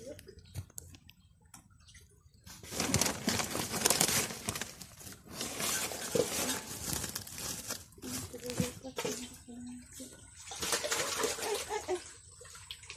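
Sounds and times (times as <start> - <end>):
hand rummaging through dry bedding: 2.5 - 8.8.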